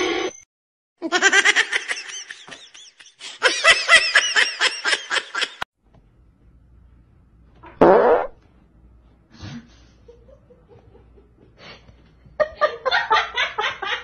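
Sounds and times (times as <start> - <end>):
high-pitched laughter: 1.0 - 5.6.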